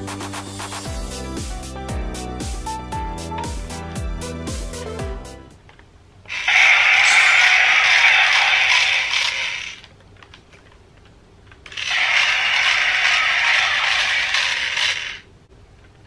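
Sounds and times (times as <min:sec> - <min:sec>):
toy drill sound effect: 0:06.3 - 0:09.9, 0:11.7 - 0:15.3.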